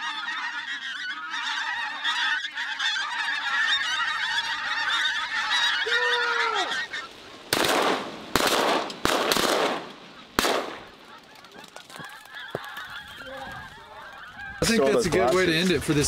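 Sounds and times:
geese honking overhead: 0.0 - 16.0
loud bangs: 7.4 - 11.2.

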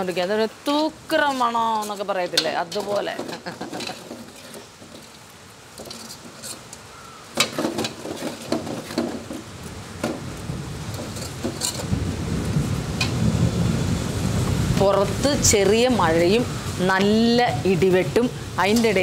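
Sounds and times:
gravy sizzling in pan: 0.0 - 14.7
ladle scraping metal pan: 1.2 - 6.8, 7.4 - 9.5, 10.9 - 12.0
thunder rumble: 10.0 - 18.6.

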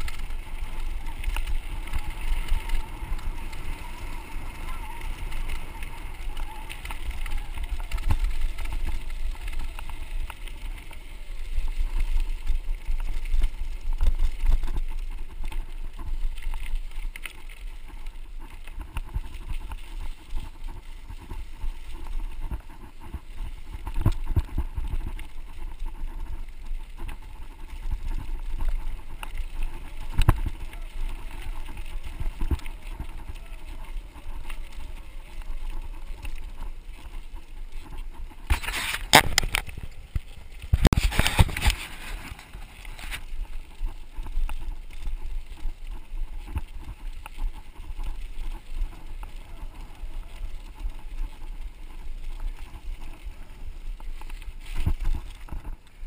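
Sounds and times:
bike rattling over bumps: 0.0 - 56.0
bike tyres crunching on gravel: 0.0 - 56.0.

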